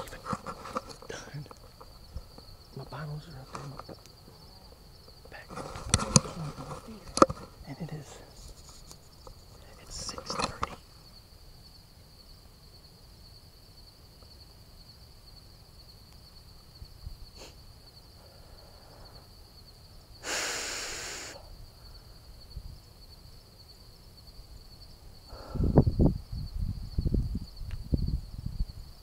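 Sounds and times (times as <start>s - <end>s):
rustle: 0.0s - 29.0s
high-pitched insect drone: 15.8s - 29.0s
person exhaling heavily: 20.2s - 21.5s, 25.3s - 25.9s.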